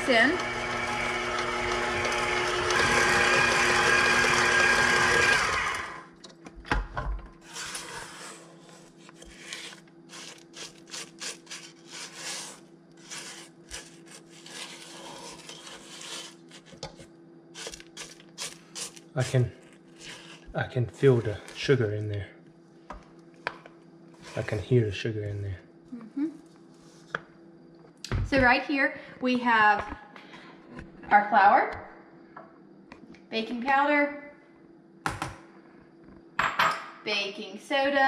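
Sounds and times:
stand mixer running: 0.0s - 6.1s
spatula scraping metal bowl: 7.4s - 17.0s.

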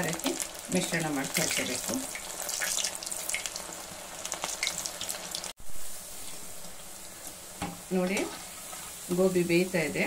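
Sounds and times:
deep-frying in hot oil: 0.0s - 10.0s.

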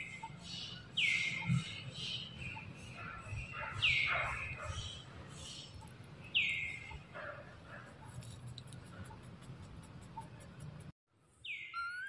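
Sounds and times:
whistled bird call: 11.5s - 12.0s.

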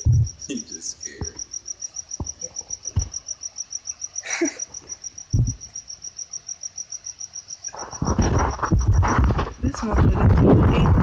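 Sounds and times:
low thumps: 0.0s - 0.6s, 2.1s - 3.4s, 5.3s - 5.8s, 8.0s - 11.0s
cricket chirping: 0.0s - 11.0s.

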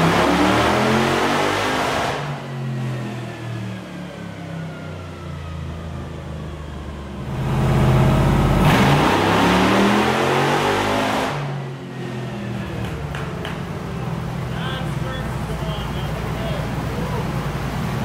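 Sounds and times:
engine revving at full throttle: 0.0s - 3.0s, 7.3s - 12.3s.

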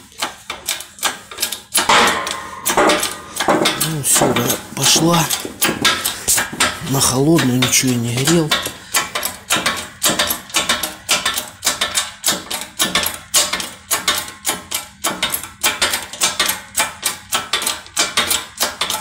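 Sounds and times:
hand-pumped press clanking: 0.2s - 13.7s.

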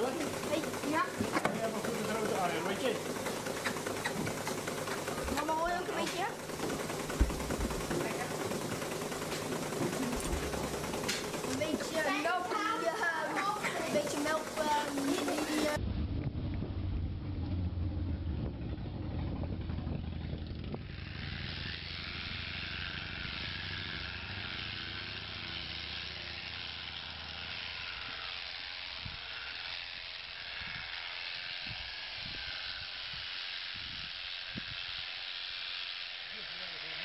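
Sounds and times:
electric shearing handpiece buzzing: 0.0s - 15.8s, 16.9s - 37.0s
dull low thumps: 15.8s - 20.9s
wind rumble on microphone: 15.8s - 22.0s, 31.6s - 35.0s.

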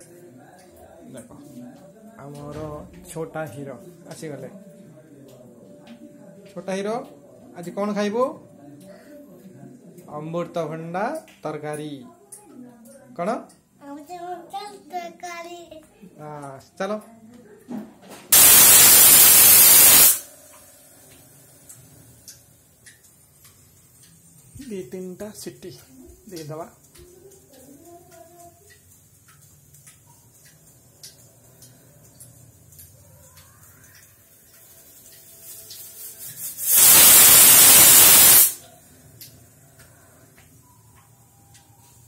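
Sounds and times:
steam sputtering: 18.3s - 20.3s, 35.4s - 38.6s
loud burst of hissing: 18.3s - 20.4s, 36.0s - 38.6s
pressure cooker whistle: 18.4s - 20.3s, 36.6s - 38.6s
light ticks: 20.5s - 24.8s, 25.7s - 35.9s.

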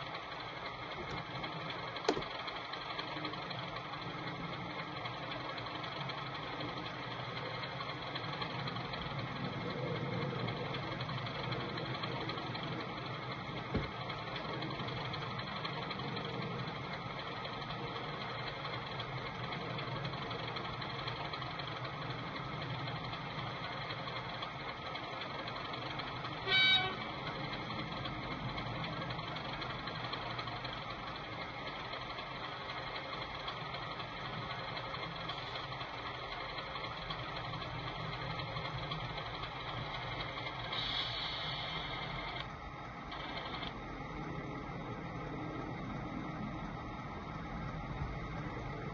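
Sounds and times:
model diesel engine idling: 0.0s - 48.9s
short horn toot: 26.5s - 27.0s.

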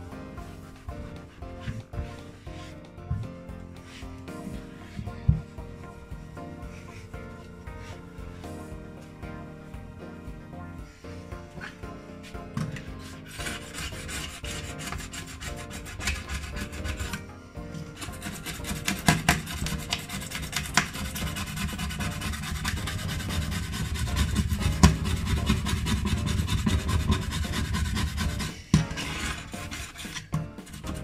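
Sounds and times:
scraper rasping on glass hob: 12.8s - 17.2s, 17.8s - 31.0s.

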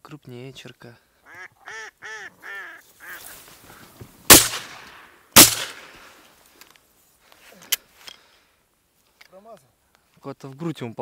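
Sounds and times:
duck quacking calls: 1.2s - 3.4s
shotgun shots echoing: 4.3s - 6.1s.

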